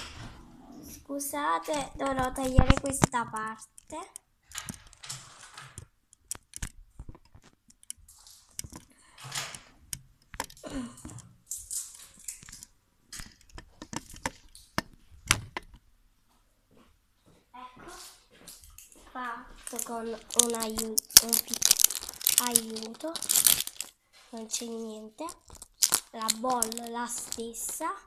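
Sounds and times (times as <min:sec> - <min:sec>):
toy packaging crinkling: 0:01.7 - 0:04.1, 0:19.6 - 0:28.0
sharp clicks and crackles: 0:01.7 - 0:15.8, 0:19.6 - 0:28.0.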